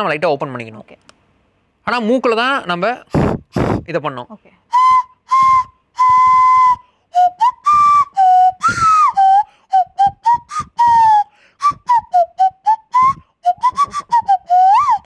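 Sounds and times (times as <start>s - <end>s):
nose flute playing a tune: 4.7s - 15.0s.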